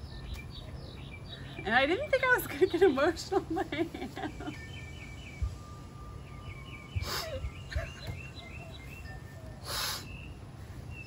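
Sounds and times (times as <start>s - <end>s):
small birds chirping: 0.0s - 11.0s
person crying with sniffs: 7.0s - 7.5s, 9.6s - 10.1s.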